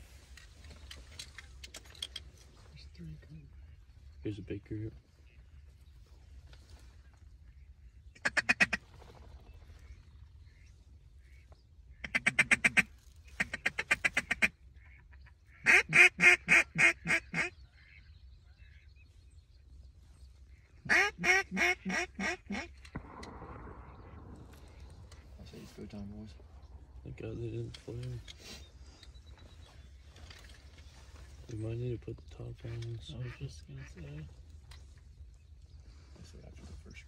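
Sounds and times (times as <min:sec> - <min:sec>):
duck call rapid quacks: 0:08.2 - 0:08.8, 0:12.0 - 0:14.5, 0:15.6 - 0:17.5.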